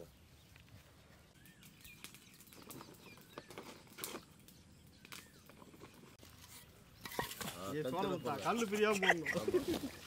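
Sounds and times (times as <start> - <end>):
faint bird chirps: 0.0 - 7.2.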